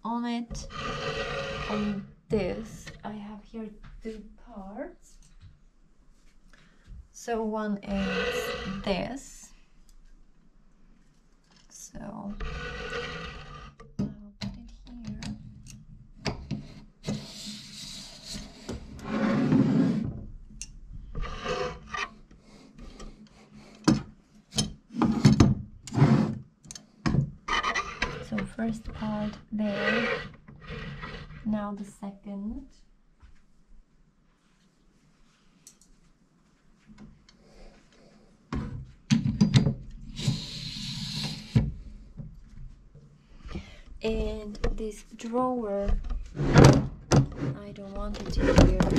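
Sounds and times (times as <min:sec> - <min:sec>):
rubbing and scraping of parts: 0:00.5 - 0:03.0, 0:07.8 - 0:09.0, 0:12.3 - 0:13.8, 0:21.1 - 0:26.4, 0:27.5 - 0:31.5, 0:46.0 - 0:48.9.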